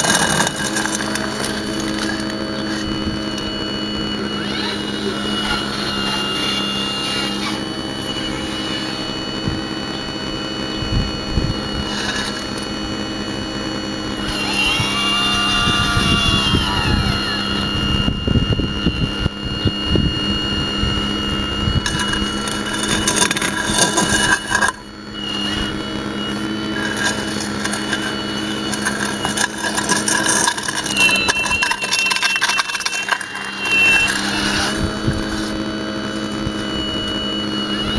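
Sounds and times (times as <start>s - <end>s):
rubble knocking and scraping: 0.0s - 2.9s
model excavator hydraulic whine: 0.0s - 37.9s.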